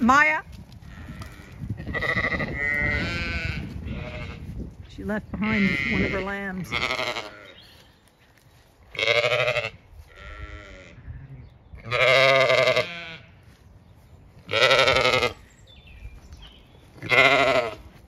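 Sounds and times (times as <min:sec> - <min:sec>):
sheep bleating: 0:00.9 - 0:04.5, 0:05.4 - 0:07.6, 0:08.9 - 0:11.0, 0:11.8 - 0:13.3, 0:14.5 - 0:15.4, 0:17.0 - 0:17.9.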